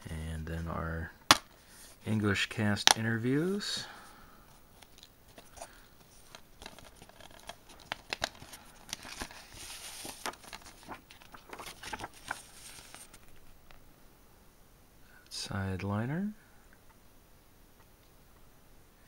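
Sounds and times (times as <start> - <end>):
paper rustling: 4.7 - 13.8.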